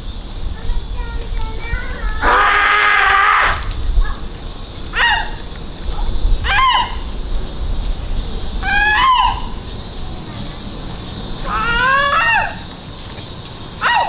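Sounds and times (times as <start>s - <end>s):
animal-like cries: 2.2s - 3.7s, 4.9s - 5.4s, 6.4s - 7.1s, 8.6s - 9.6s, 11.4s - 12.7s, 13.8s - 14.0s.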